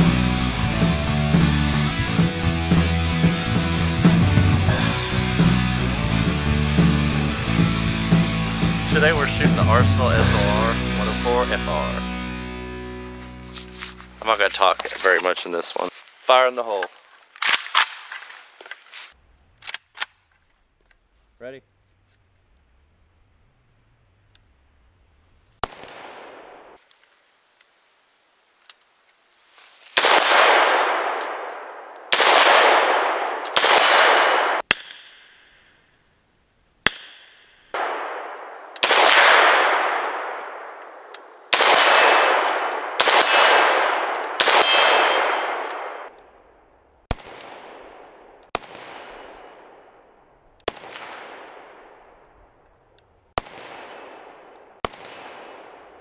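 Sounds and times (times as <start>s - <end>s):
rifle shots: 25.6s - 26.8s, 30.0s - 35.0s, 36.8s - 46.2s, 47.1s - 52.2s, 53.4s - 56.0s.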